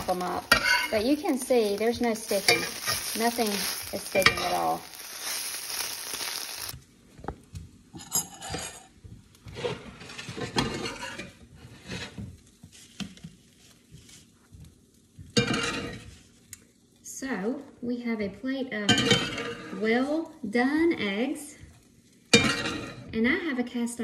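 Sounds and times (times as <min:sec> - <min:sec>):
metal spatula chopping eggs: 0:00.0 - 0:06.5
metal spoon scraping cast iron: 0:00.0 - 0:06.7
eggs sizzling in skillet: 0:00.0 - 0:06.8.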